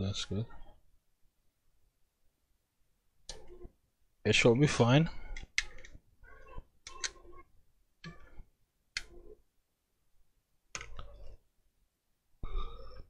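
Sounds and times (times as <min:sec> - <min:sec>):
computer mouse clicks: 0:05.3 - 0:06.0, 0:06.8 - 0:07.2, 0:09.0 - 0:09.2, 0:10.7 - 0:11.4.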